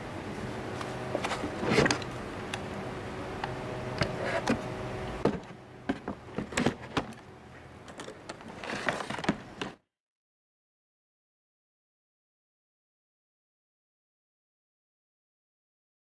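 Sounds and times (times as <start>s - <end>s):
steady low hum: 0.0s - 9.8s
cardboard rustling and knocking: 5.2s - 7.1s.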